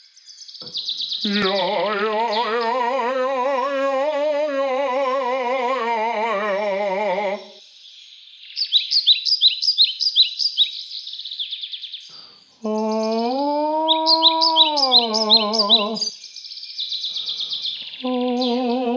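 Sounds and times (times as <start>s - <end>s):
songbird chirping: 0.0s - 18.9s
person singing a long vibrato note: 1.2s - 7.6s, 12.6s - 16.1s, 18.0s - 18.9s.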